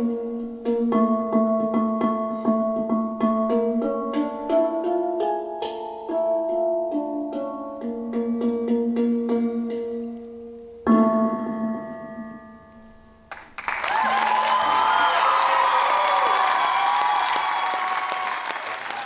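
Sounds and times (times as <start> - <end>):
audience applause and cheering: 13.3 - 19.0.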